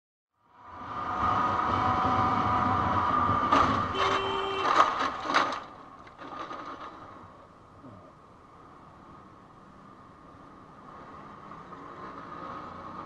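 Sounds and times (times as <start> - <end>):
traffic noise: 0.3 - 13.0
scooter engine: 1.5 - 7.4
scooter crashing on road: 3.4 - 7.3.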